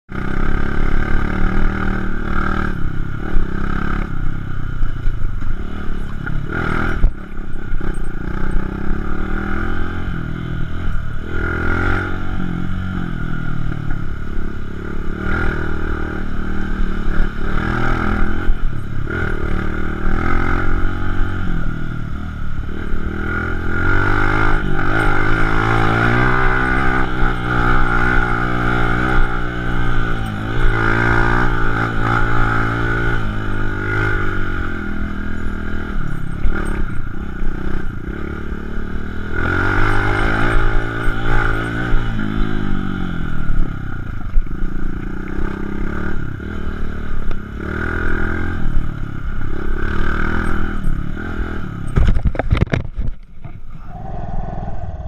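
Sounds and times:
dirt bike engine revving: 0.1s - 52.2s
bike knocks and rattles: 51.8s - 53.6s.

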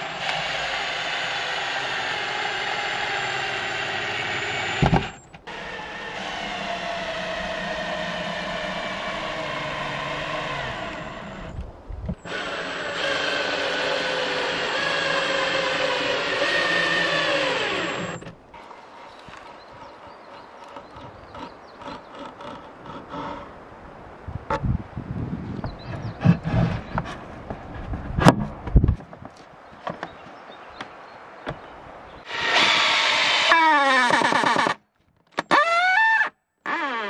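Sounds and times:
cordless drill driving screws: 0.0s - 11.6s, 12.2s - 18.4s, 32.3s - 34.8s.

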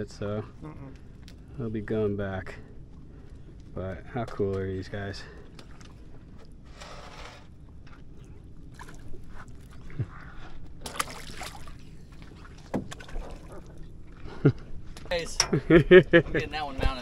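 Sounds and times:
water lapping around boat: 2.5s - 4.0s, 4.9s - 16.4s
fish splashing into water: 8.7s - 9.2s, 10.8s - 13.8s.

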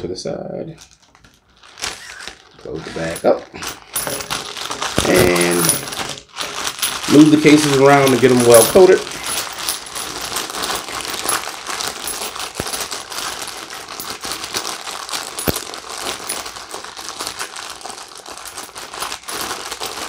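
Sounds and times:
plastic bag crinkling: 0.8s - 20.0s
metal cartridge cases clinking: 3.1s - 16.5s.

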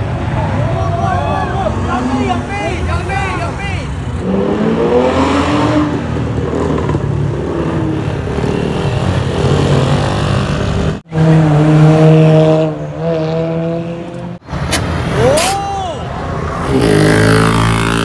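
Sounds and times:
engines revving and accelerating: 4.0s - 15.5s, 16.1s - 18.0s.

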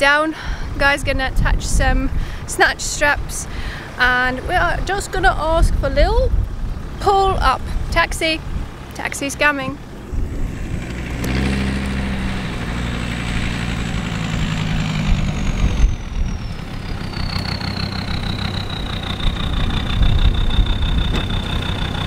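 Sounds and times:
vehicle engine at low revs: 5.5s - 22.0s
high whine: 9.7s - 22.0s.

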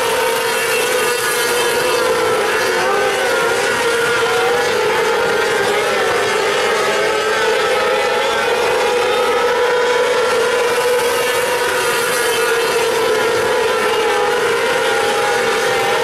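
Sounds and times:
racing car engines droning: 0.0s - 16.0s.

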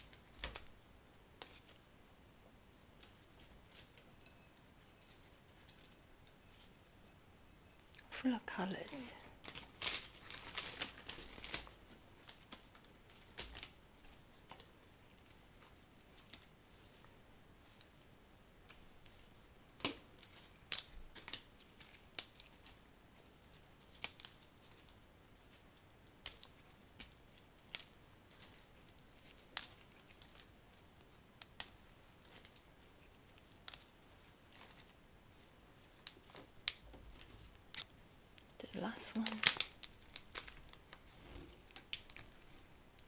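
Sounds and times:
leaves being handled: 8.4s - 17.0s, 18.6s - 43.0s.

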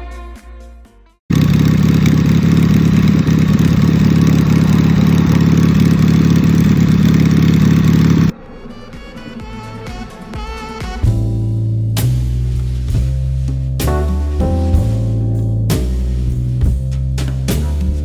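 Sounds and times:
motorcycle engine idling: 1.3s - 8.3s.

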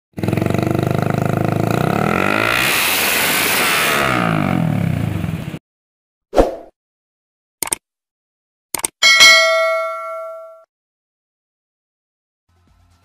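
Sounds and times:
motorcycle engine revving: 0.1s - 5.6s.

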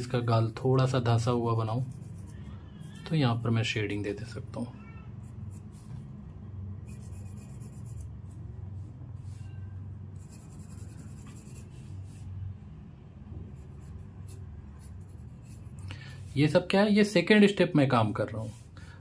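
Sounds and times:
pencil scratching on paper: 1.3s - 3.6s, 5.2s - 6.0s, 6.8s - 8.5s, 10.1s - 12.3s, 13.5s - 15.8s.

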